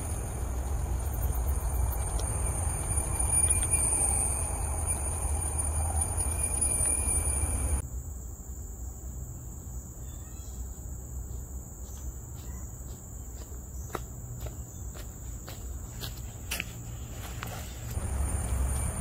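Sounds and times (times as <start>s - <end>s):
footsteps on dirt path: 0.0s - 4.4s, 11.2s - 19.0s
forest insects droning: 0.0s - 19.0s.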